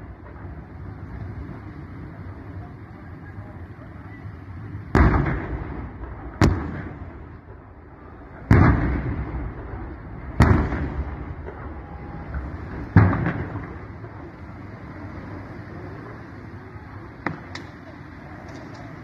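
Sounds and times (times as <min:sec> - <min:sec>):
loud explosions: 0:04.8 - 0:14.4.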